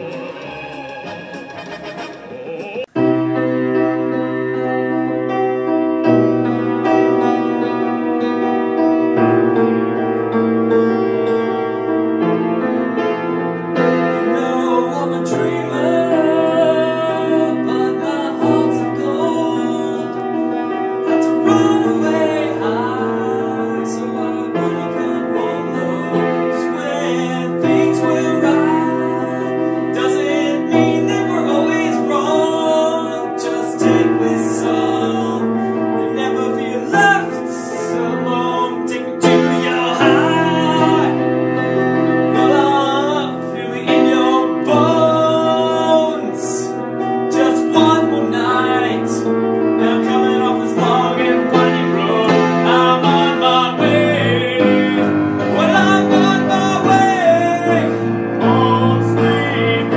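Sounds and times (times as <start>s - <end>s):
person singing: 0.0s - 3.0s, 14.2s - 20.6s, 21.2s - 41.6s, 42.2s - 59.9s
grand piano chords: 0.0s - 59.9s.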